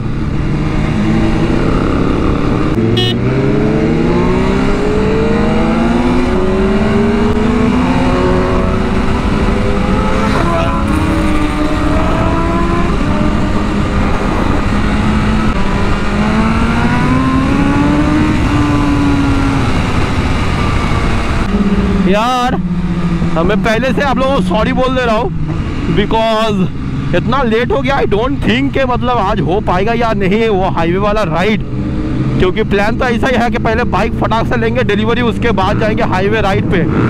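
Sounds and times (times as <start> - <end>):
wind rush: 0.0 - 27.3
motorcycle engine accelerating: 0.0 - 37.0.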